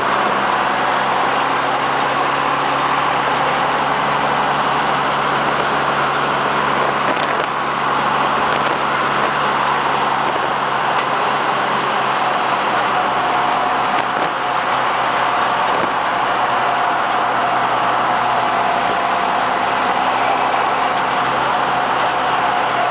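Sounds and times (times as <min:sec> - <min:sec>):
vehicle engine and road noise: 0:00.0 - 0:22.9.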